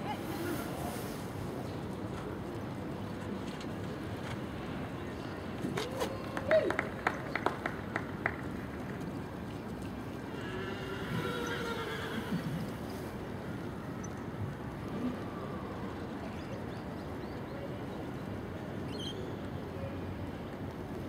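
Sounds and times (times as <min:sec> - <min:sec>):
steady background noise: 0:00.0 - 0:21.0
pony whinnying: 0:10.4 - 0:12.6.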